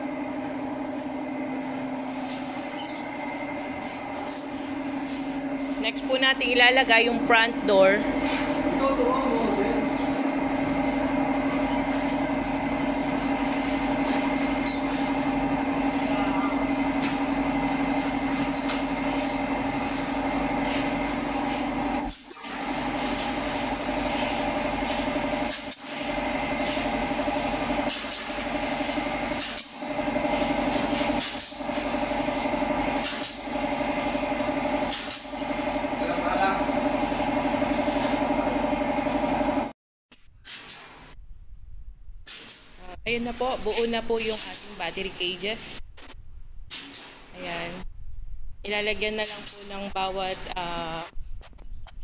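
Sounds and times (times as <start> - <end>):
machine hum: 0.0 - 40.4.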